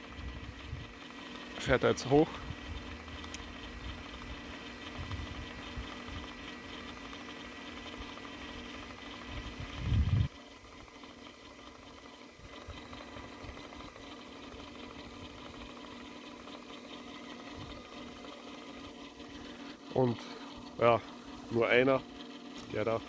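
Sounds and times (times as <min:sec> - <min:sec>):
motor humming and whining: 0:00.0 - 0:23.0.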